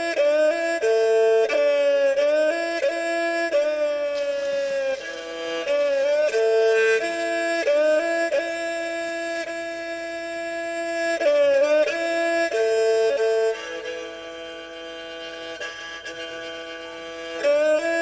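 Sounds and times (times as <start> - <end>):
solo melody of long held notes: 0.0 - 18.0
low sustained note: 4.1 - 11.3.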